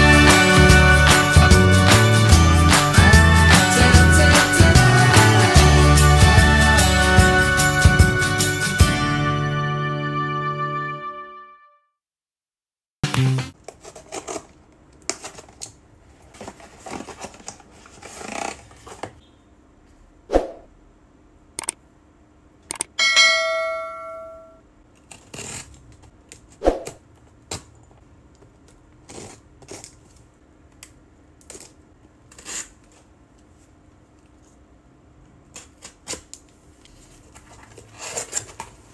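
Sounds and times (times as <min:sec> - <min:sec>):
click: 0:22.7 - 0:22.9
bell-like ding: 0:23.0 - 0:24.6
box cutter slitting tape: 0:25.0 - 0:26.0, 0:31.4 - 0:33.0.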